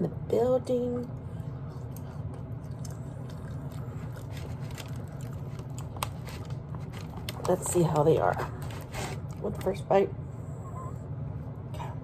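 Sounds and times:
sticky handling noises: 0:01.8 - 0:09.8.

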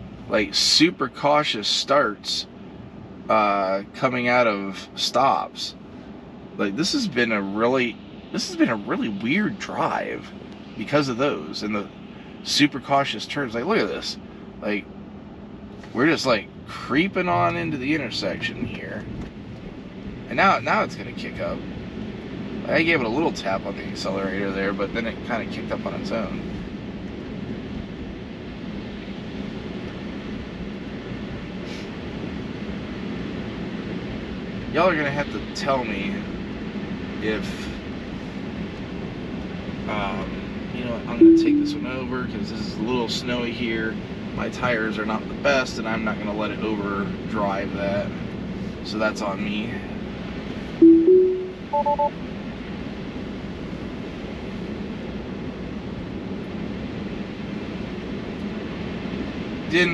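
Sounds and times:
road and tyre noise: 0:00.0 - 0:59.9
rising chime: 0:41.2 - 0:41.9, 0:50.8 - 0:52.1
two-tone beeps: 0:41.2 - 0:41.9, 0:50.8 - 0:52.1.

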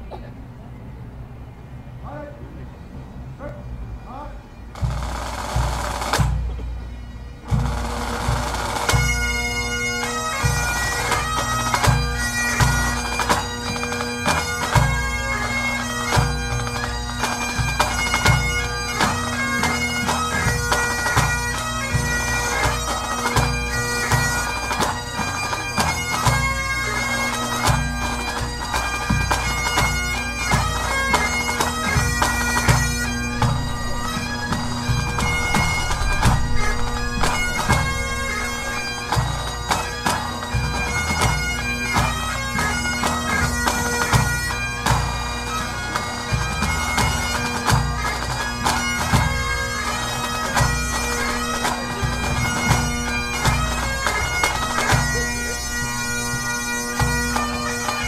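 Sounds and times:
bagpipes playing: 0:03.7 - 0:58.0
steady drumming: 0:27.6 - 0:42.8, 0:46.5 - 0:58.0
drum rolls: 0:32.0 - 0:41.4, 0:50.5 - 0:57.3.

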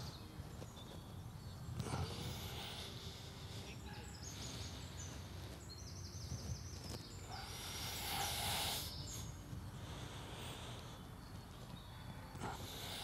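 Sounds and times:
bird trill: 0:00.0 - 0:13.0
small birds chirping: 0:00.0 - 0:13.0
steady low rumble: 0:00.0 - 0:13.0.

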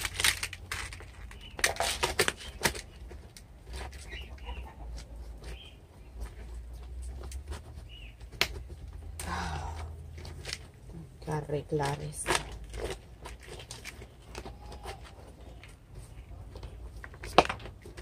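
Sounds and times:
soft rustling of soil: 0:00.0 - 0:18.0
bird chirps: 0:07.8 - 0:08.2.

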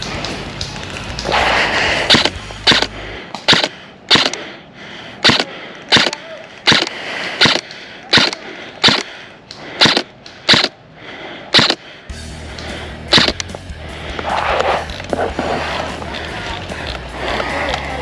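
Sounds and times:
airsoft gun shots: 0:02.1 - 0:04.4, 0:05.2 - 0:09.1, 0:09.8 - 0:10.8, 0:11.5 - 0:11.8, 0:13.1 - 0:13.4.

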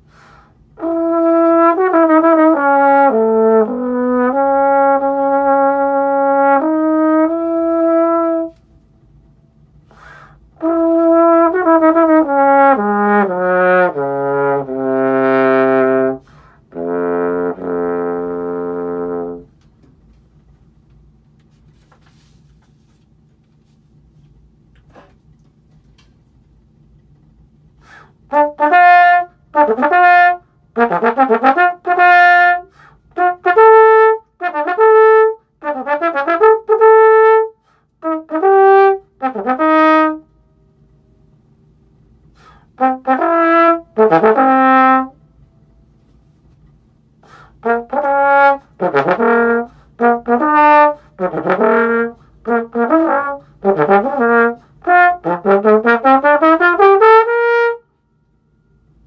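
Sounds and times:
trombone playing: 0:00.8 - 0:08.6, 0:10.5 - 0:19.6, 0:28.3 - 0:40.3, 0:42.4 - 0:45.2, 0:47.3 - 0:58.0.

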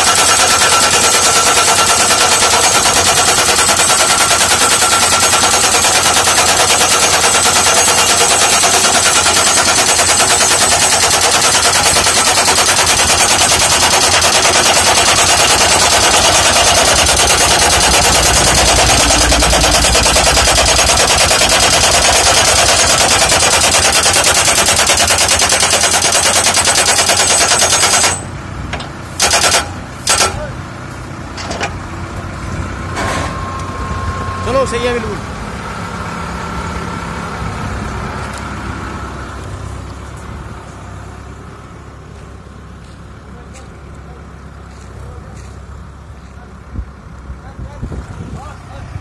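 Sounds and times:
hammer pounding metal post: 0:00.0 - 0:28.2, 0:28.8 - 0:30.5.

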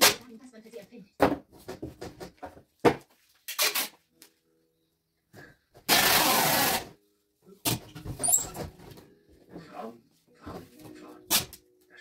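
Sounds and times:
packing tape screech: 0:03.5 - 0:04.0, 0:05.9 - 0:07.0.

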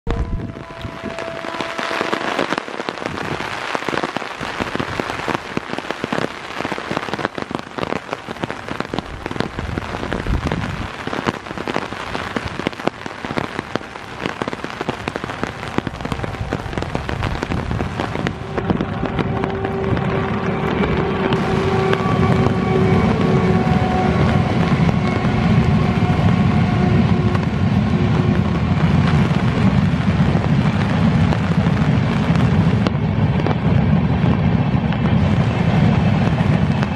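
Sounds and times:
heavy rain falling: 0:00.0 - 0:36.9
steady train tones: 0:00.1 - 0:02.7, 0:17.9 - 0:30.3
train wheels rumbling on track: 0:15.5 - 0:36.9.

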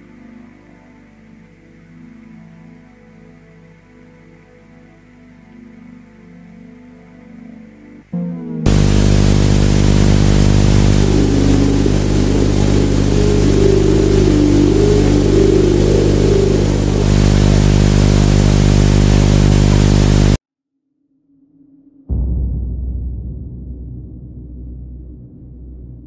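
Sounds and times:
warbling tone: 0:08.2 - 0:20.4
harsh static with electrical buzz: 0:08.7 - 0:20.4.

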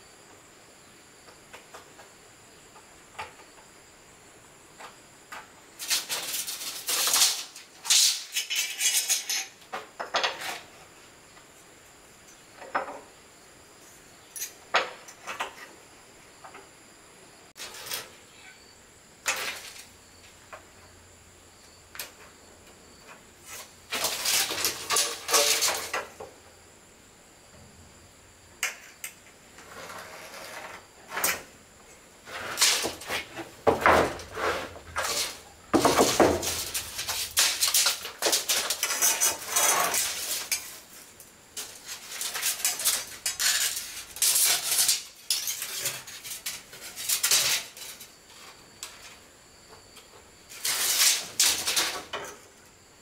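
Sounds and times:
high insect trill: 0:00.0 - 0:53.0
scraping and clattering: 0:05.8 - 0:10.7, 0:23.0 - 0:26.2, 0:32.2 - 0:49.2, 0:50.5 - 0:52.4.

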